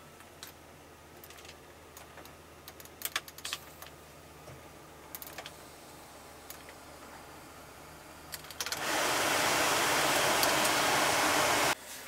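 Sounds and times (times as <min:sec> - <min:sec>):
steady low hum: 0:00.0 - 0:11.8
control knobs clicking: 0:08.3 - 0:08.8, 0:10.2 - 0:10.8.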